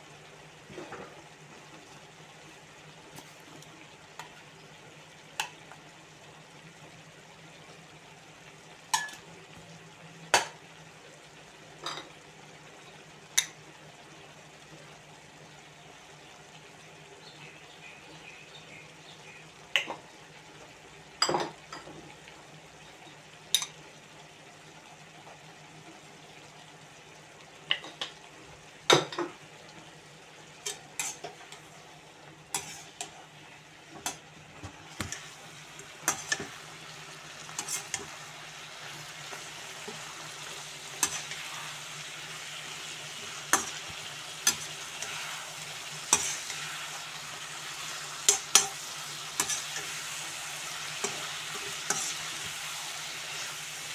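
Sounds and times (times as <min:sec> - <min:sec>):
food sizzling: 0:00.0 - 0:53.9
ladle scraping against wok: 0:32.5 - 0:33.1, 0:37.6 - 0:38.1, 0:51.0 - 0:52.3.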